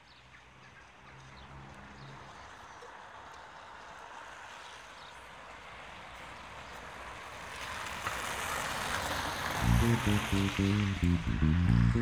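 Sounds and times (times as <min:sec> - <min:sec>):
song with bass line: 0:09.6 - 0:12.0.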